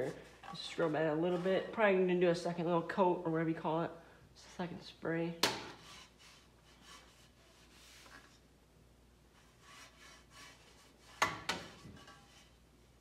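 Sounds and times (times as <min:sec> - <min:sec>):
towel rubbing metal exhaust pipe: 0:09.3 - 0:12.7.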